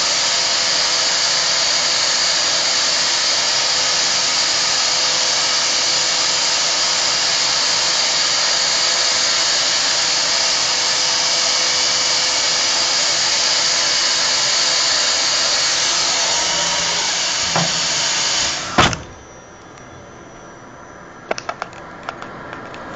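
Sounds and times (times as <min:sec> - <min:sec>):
robotic machine whine and hiss: 0:02.0 - 0:21.4.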